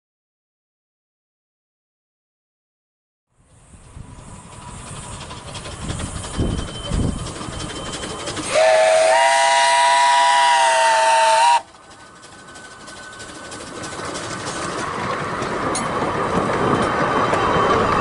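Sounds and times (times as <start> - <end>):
steam locomotive running: 3.4 - 18.0
steam hiss: 3.5 - 14.8
steam whistle chord: 8.4 - 11.7.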